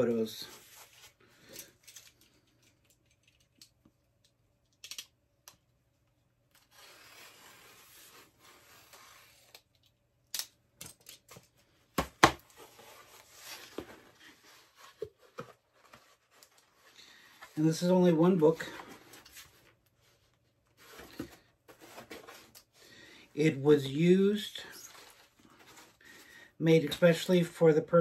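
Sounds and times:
cardboard rustling: 11.3 - 22.8, 24.6 - 26.3.

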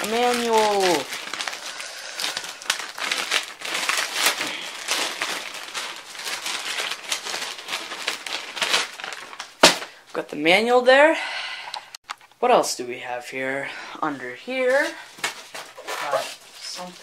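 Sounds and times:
packaging crinkling: 0.0 - 10.1.

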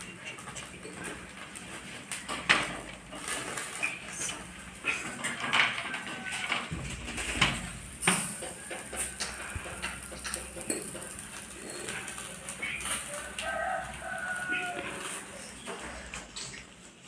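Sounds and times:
metal skewers clinking on grill: 7.3 - 16.6.

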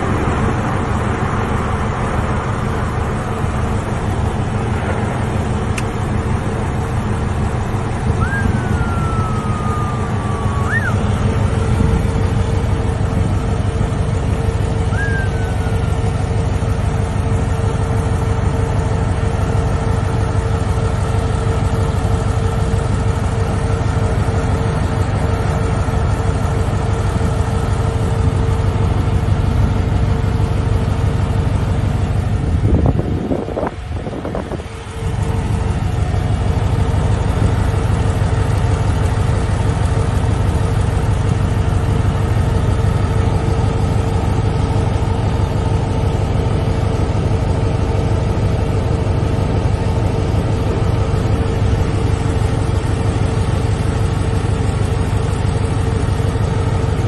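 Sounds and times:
heavy machine engine humming: 0.0 - 57.0
short whistle-like tones: 8.1 - 11.3, 14.9 - 16.0.

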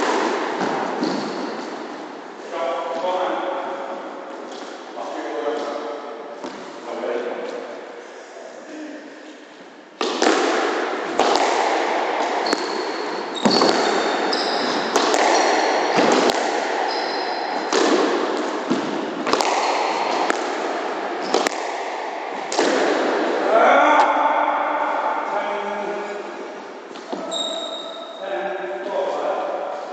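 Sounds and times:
squash ball hitting rackets and walls: 0.0 - 2.0, 4.4 - 6.7, 10.0 - 23.5
shoes squeaking on wooden floor: 1.0 - 1.7, 12.4 - 16.1, 16.8 - 17.7, 27.1 - 28.0.

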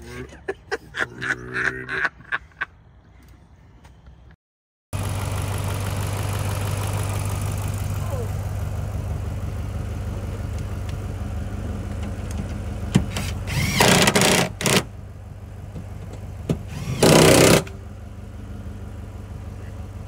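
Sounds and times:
car engine idling: 5.0 - 20.0
loud engine bursts: 13.2 - 14.9, 16.7 - 17.8.

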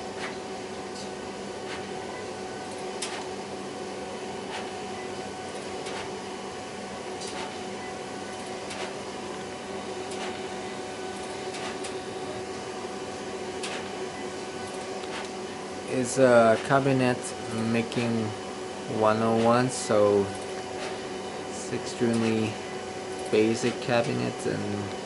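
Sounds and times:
printer mechanical hum: 0.0 - 25.0
printer sharp clicks: 3.0 - 3.3, 5.6 - 6.2, 7.2 - 7.6, 8.4 - 9.0, 10.0 - 10.4, 11.1 - 12.0, 13.6 - 13.9, 22.1 - 22.4.

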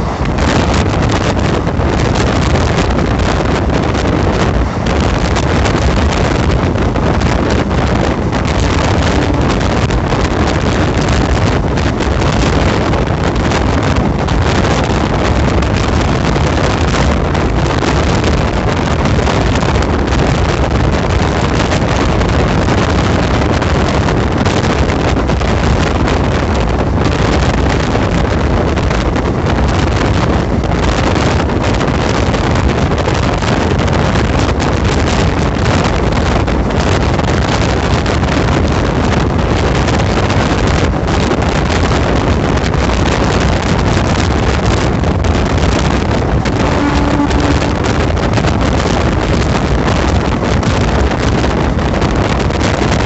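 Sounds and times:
train wheels rumbling on rails: 0.0 - 53.0
wind buffeting microphone: 0.0 - 53.0.

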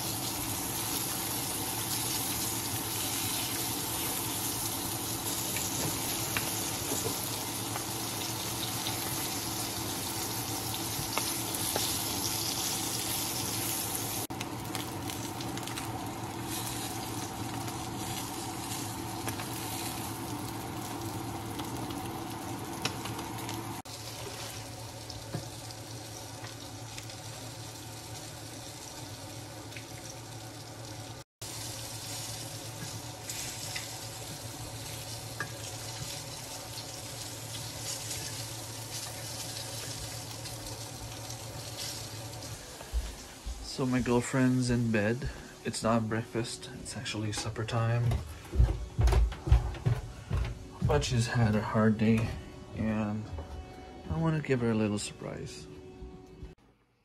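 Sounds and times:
fish frying in oil: 0.0 - 45.2.

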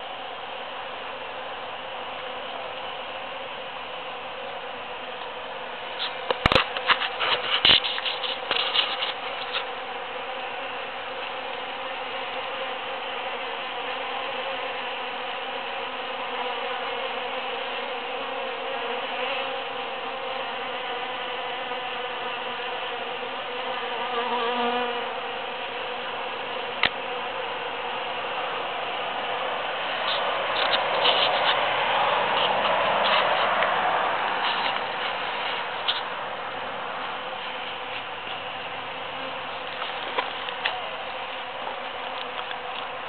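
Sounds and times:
bees buzzing: 0.0 - 43.0.

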